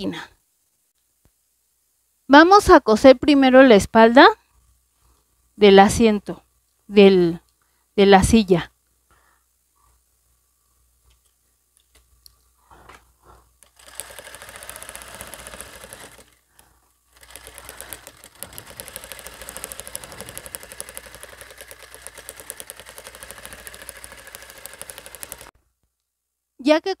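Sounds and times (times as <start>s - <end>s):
sewing machine stitching: 13.6s - 25.5s.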